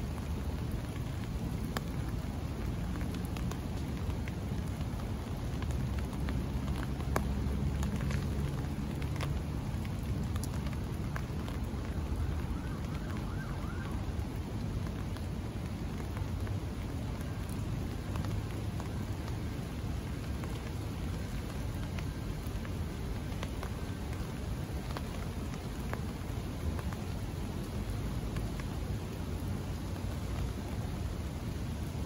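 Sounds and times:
rain falling: 0:00.0 - 0:32.0
raindrops ticking on umbrella: 0:00.0 - 0:32.0.

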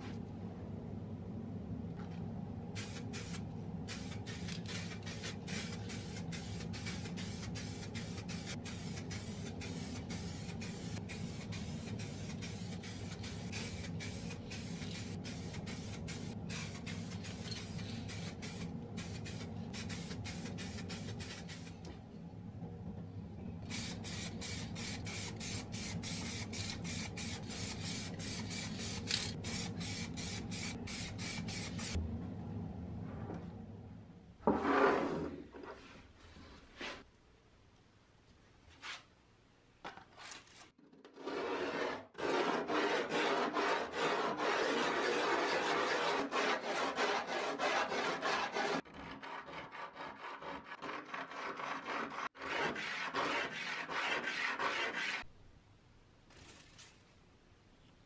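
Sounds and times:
steady low hum: 0:00.0 - 0:34.5
aerosol spray can hissing: 0:02.8 - 0:21.8, 0:23.7 - 0:32.0.

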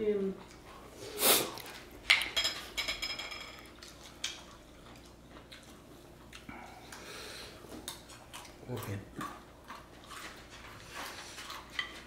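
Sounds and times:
cutlery clinking on dishes: 0:02.1 - 0:04.4.

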